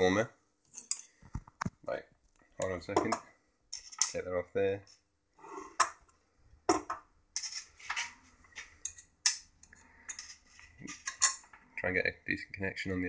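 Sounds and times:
metallic clicks and scrapes: 7.4s - 11.6s.

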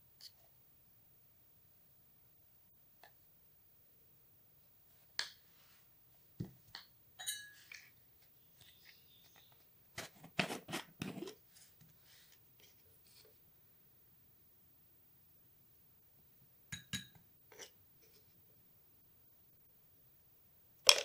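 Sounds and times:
glass jars tapping and clinking: 7.2s - 7.8s.

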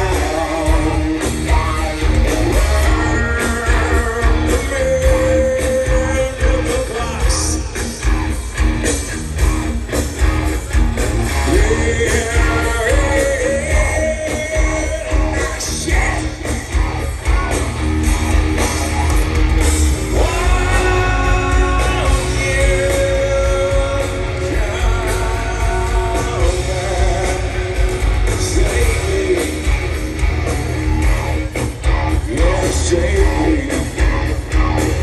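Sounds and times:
lead vocal holding long notes: 0.0s - 7.7s, 20.1s - 29.8s
bass guitar: 0.0s - 35.0s
drums: 0.0s - 35.0s
electric guitar: 0.0s - 35.0s.

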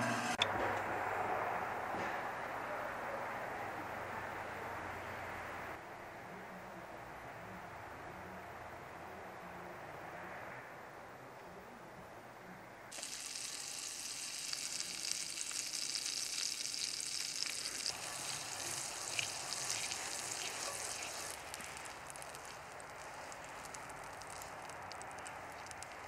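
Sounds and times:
butter sizzling in a skillet: 12.9s - 26.0s.

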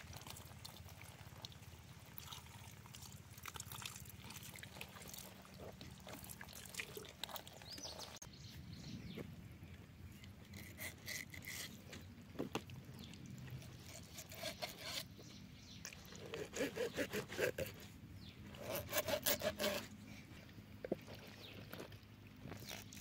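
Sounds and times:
knife sawing through raw chicken: 13.8s - 15.1s, 16.2s - 17.8s, 18.6s - 20.0s.

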